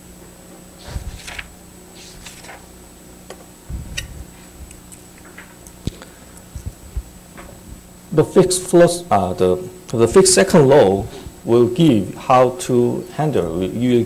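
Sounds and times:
steady low hum: 0:00.0 - 0:14.0
thin high whine: 0:00.7 - 0:14.0
soft rustles: 0:00.8 - 0:02.6.

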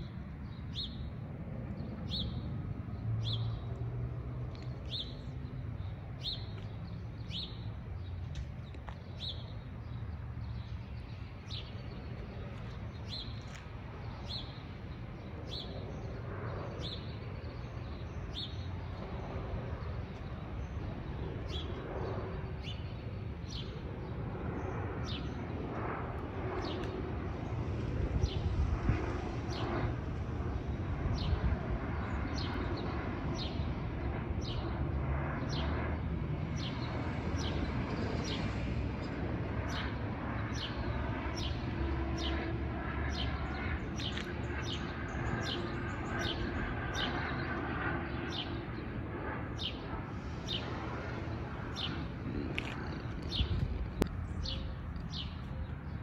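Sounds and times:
low rumble: 0:50.1 - 0:56.0.

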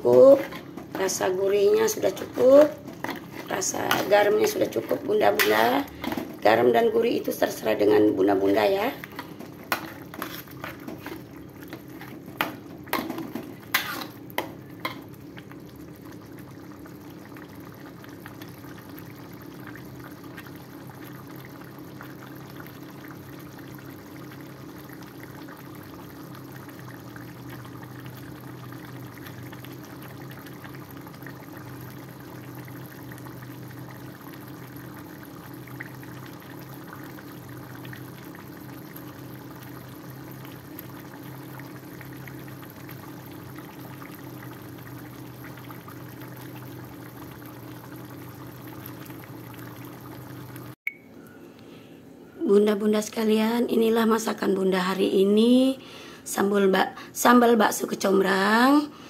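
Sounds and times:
sauce bubbling in a wok: 0:00.0 - 0:50.8
metal spatula scraping wok: 0:09.8 - 0:11.2, 0:13.7 - 0:14.2.

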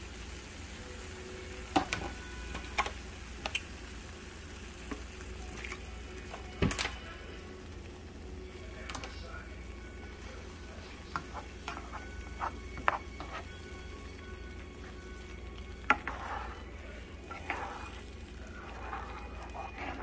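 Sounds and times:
gravy sizzling: 0:00.0 - 0:20.0
spoon scraping frying pan: 0:11.1 - 0:13.7, 0:15.8 - 0:20.0.

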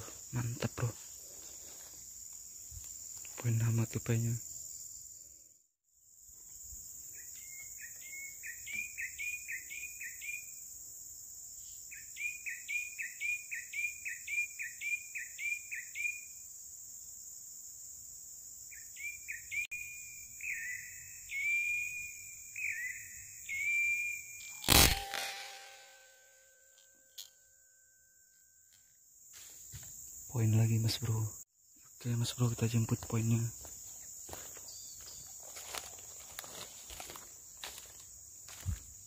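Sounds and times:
high insect drone: 0:00.0 - 0:39.0
sharp repeated chirping calls: 0:18.9 - 0:27.9.

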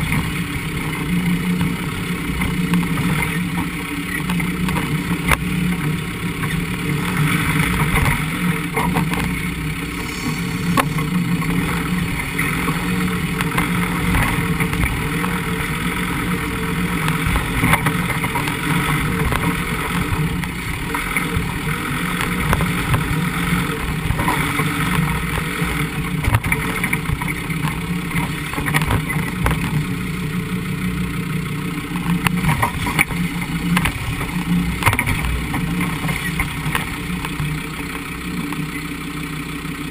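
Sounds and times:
car engine running: 0:00.0 - 0:39.9
water rushing and splashing: 0:05.5 - 0:29.8
sharp knocks and clicks: 0:06.4 - 0:09.4, 0:10.7 - 0:29.9, 0:31.9 - 0:37.6.

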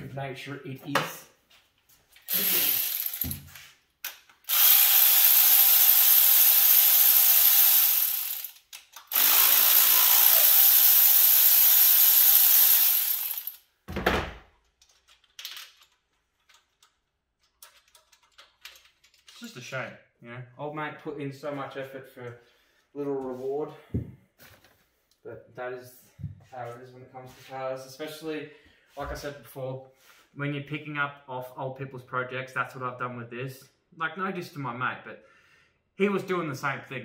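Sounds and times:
ratchet ratcheting: 0:02.3 - 0:03.4, 0:04.4 - 0:13.6.

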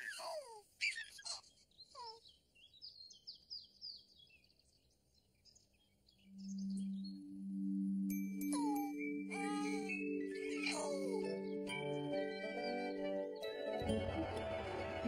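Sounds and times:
birdsong chirps and whistles: 0:00.0 - 0:14.2
held musical note: 0:07.3 - 0:15.0.

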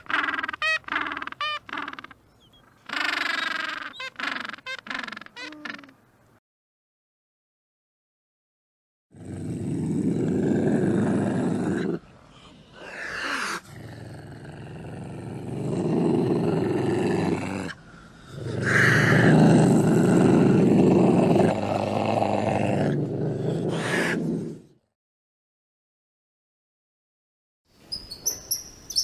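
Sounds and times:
ocelot growling: 0:09.1 - 0:24.8.

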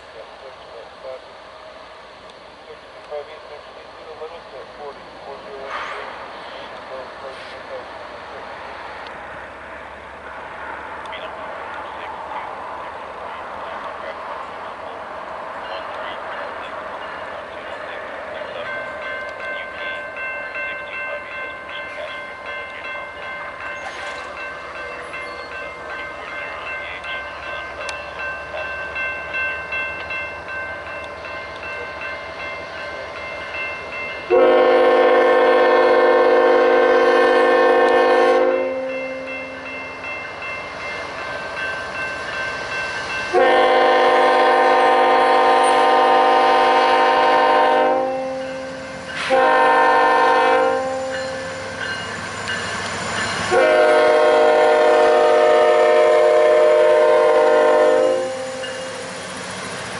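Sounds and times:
locomotive air horn blasts: 0:34.3 - 0:38.9, 0:43.3 - 0:51.5, 0:53.5 - 0:59.0.

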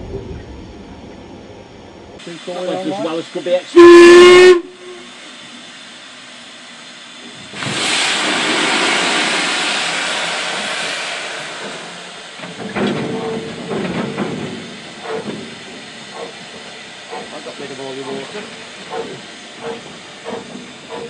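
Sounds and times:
steam hissing: 0:02.2 - 0:21.0
steam locomotive whistle blast: 0:03.7 - 0:05.2.

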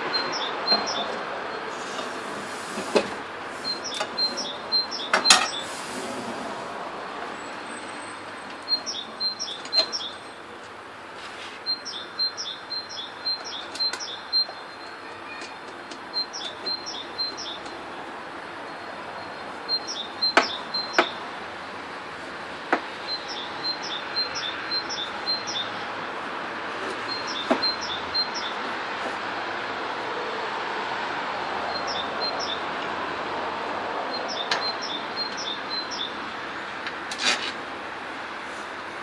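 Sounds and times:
songbird chirping: 0:00.1 - 0:01.7, 0:03.6 - 0:05.8, 0:08.6 - 0:10.4, 0:11.6 - 0:17.9, 0:18.6 - 0:21.8, 0:22.8 - 0:26.0, 0:27.1 - 0:28.7, 0:31.7 - 0:32.7, 0:34.1 - 0:36.2.

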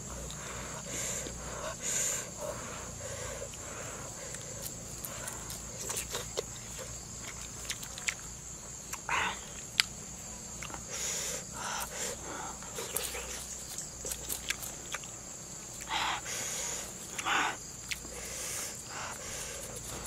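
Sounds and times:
person chewing and lip smacking: 0:04.3 - 0:08.3, 0:08.9 - 0:10.8, 0:12.6 - 0:15.9, 0:17.0 - 0:18.3.

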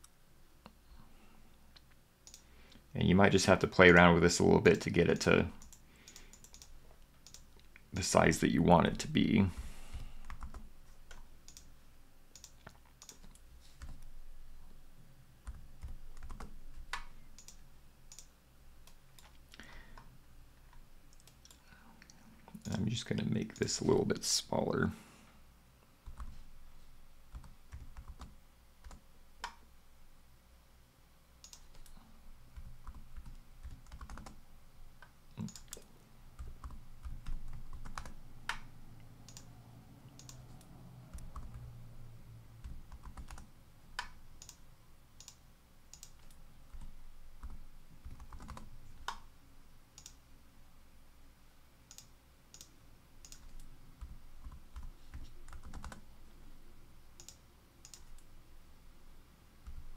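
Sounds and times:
mouse clicks: 0:05.6 - 0:07.8, 0:31.4 - 0:32.0, 0:39.3 - 0:39.5, 0:40.2 - 0:41.5, 0:50.0 - 0:50.2, 0:51.9 - 0:53.7, 0:57.2 - 0:58.3
keyboard keystrokes: 0:32.6 - 0:34.4, 0:46.0 - 0:49.2, 0:51.9 - 0:56.0.

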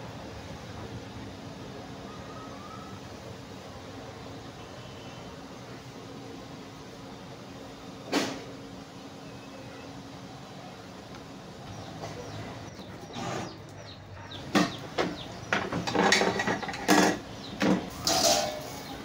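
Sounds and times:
metal clanking and scraping: 0:14.3 - 0:18.9.

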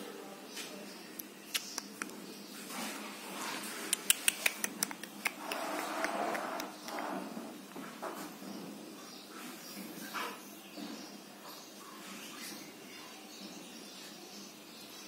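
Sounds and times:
sharp clicks and taps: 0:03.9 - 0:07.1.

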